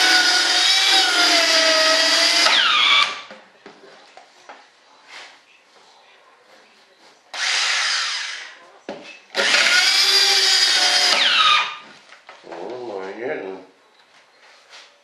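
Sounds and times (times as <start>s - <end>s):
electric jigsaw cutting: 0.0s - 3.3s, 7.4s - 8.5s, 9.4s - 11.8s.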